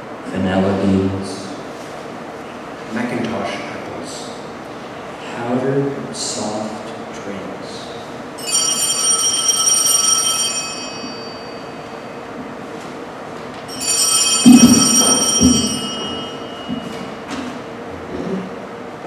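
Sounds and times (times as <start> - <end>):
high metallic bell-like ringing: 8.4 - 12.4, 13.7 - 17.3.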